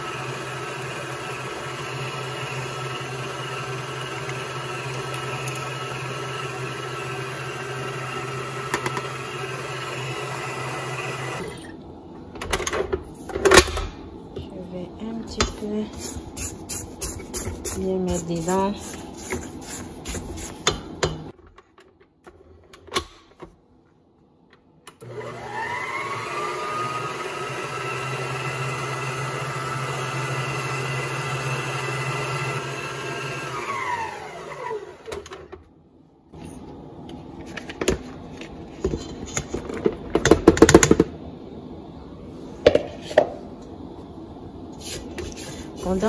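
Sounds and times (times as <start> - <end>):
stand mixer motor whine: 0.0 - 11.7, 25.0 - 35.3.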